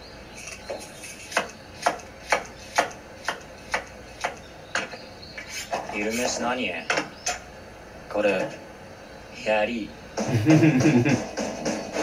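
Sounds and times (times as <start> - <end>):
knife chopping on cutting board: 1.2 - 4.9.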